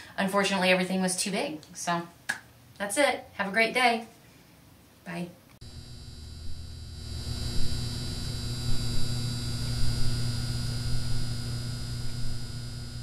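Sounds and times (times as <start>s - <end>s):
electrical hum and buzz: 5.6s - 13.0s
high whine: 5.6s - 13.0s.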